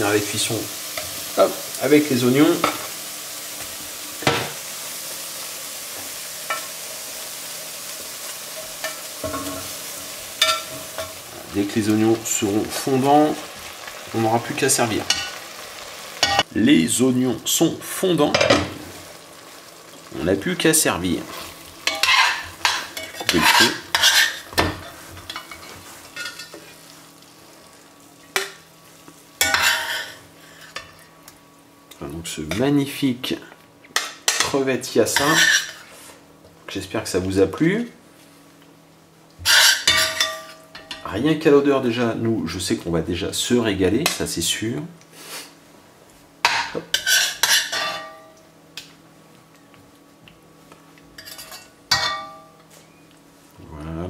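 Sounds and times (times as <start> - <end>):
frying sizzle: 0.0 - 54.0
metal spoon scraping a pot: 21.9 - 24.4, 39.5 - 40.5.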